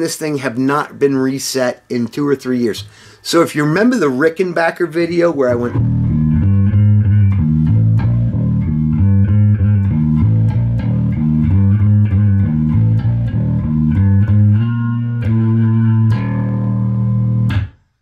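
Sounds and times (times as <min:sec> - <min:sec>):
electric bass riff: 0:05.0 - 0:17.9.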